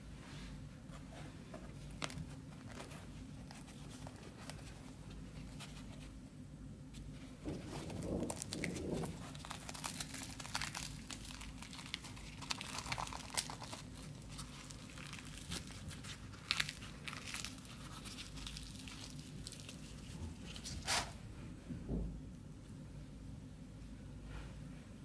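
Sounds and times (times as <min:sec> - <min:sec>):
fried bread crackling: 0:07.5 - 0:21.1.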